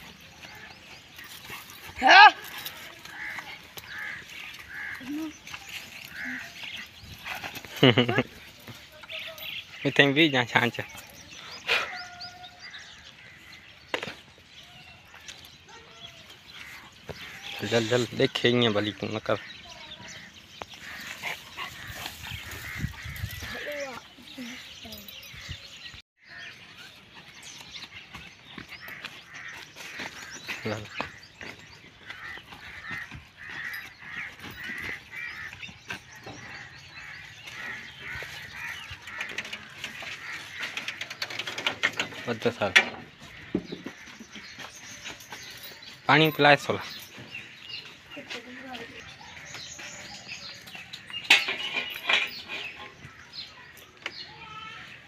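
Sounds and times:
small birds chirping: 0.0 - 55.0
faint footsteps: 26.7 - 41.3, 43.0 - 54.3.

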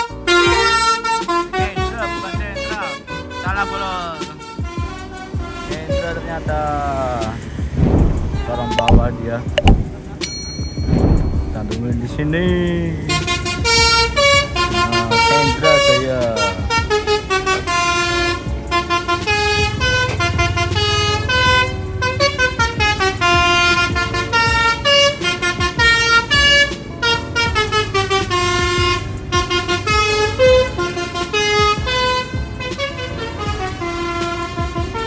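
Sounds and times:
multi-tone horn playing a tune: 0.0 - 2.8, 13.0 - 35.0
vehicle engine rumble: 6.3 - 14.9.

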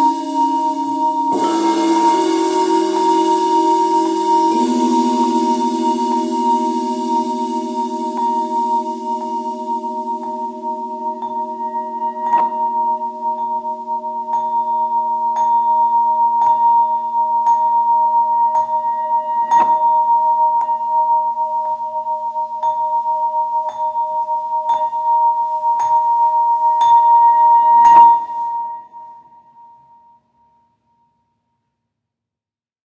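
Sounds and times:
marimba notes: 0.0 - 13.4.

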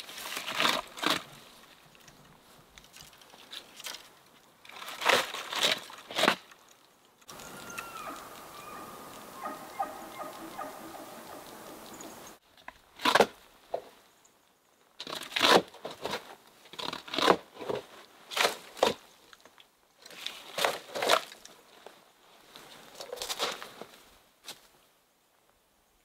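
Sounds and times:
dry brush crunching: 0.0 - 6.5, 7.3 - 12.4
steady hiss with whistle tone: 7.3 - 12.4.

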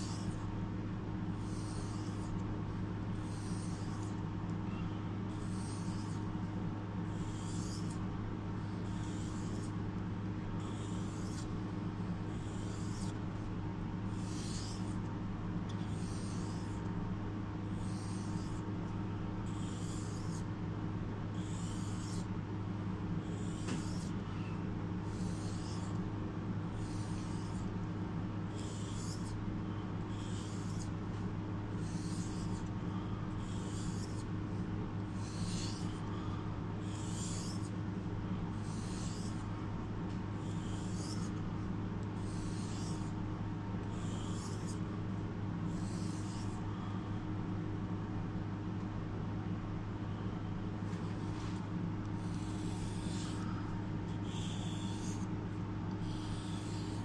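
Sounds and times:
steady low hum: 0.0 - 57.0
knife scraping on whetstone: 28.6 - 29.3, 31.8 - 32.7, 35.2 - 36.0, 36.9 - 37.7, 38.6 - 39.4, 42.2 - 43.0.

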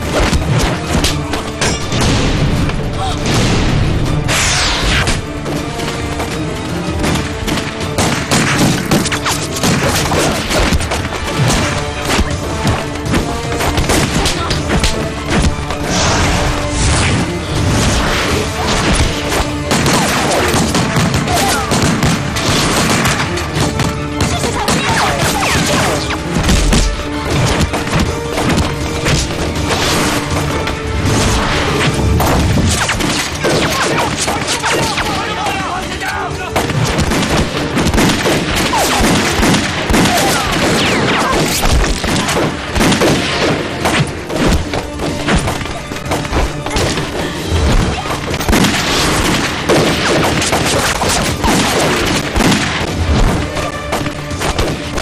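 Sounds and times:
action background music: 0.0 - 55.0
shouting voices: 33.6 - 36.6
rifle shots: 36.6 - 44.2, 48.4 - 55.0.

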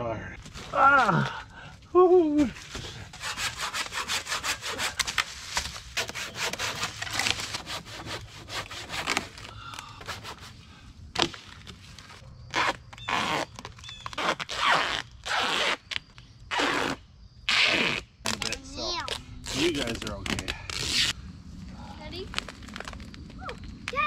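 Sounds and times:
duct tape rasping off roll: 2.6 - 9.5, 12.5 - 21.2.

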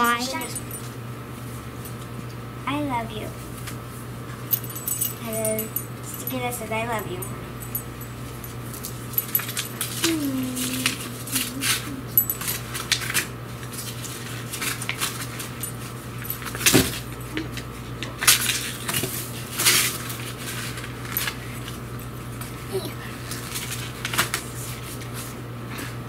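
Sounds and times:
dog whining: 10.0 - 12.2
paper and plastic crinkling: 18.2 - 21.8, 23.2 - 25.4.

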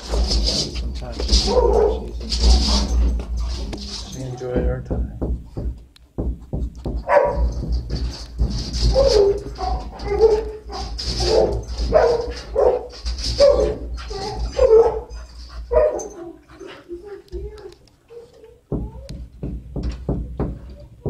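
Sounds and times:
dogs barking: 1.3 - 4.6, 7.0 - 7.6, 8.8 - 16.7.

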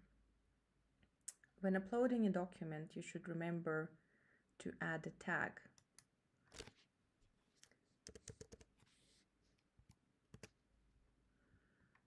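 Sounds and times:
keyboard and mouse clicking: 7.6 - 8.8, 9.8 - 10.6.

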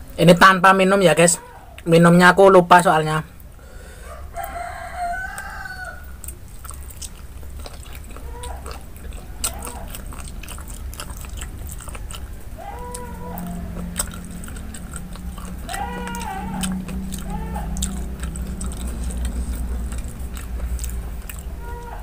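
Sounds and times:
wet chewing and sucking: 3.4 - 22.0
mouth clicks and smacks: 6.2 - 21.9.

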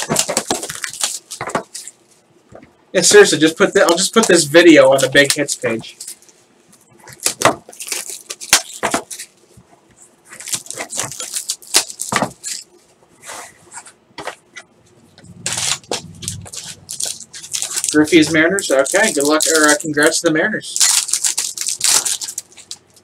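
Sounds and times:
plastic wrap crinkling: 0.0 - 2.2, 3.8 - 6.4, 7.0 - 9.5, 10.3 - 12.8, 15.4 - 23.0.

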